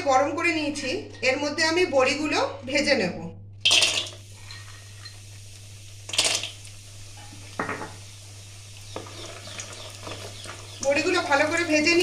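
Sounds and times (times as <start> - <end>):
knocks and clinks against pan: 7.6 - 8.0.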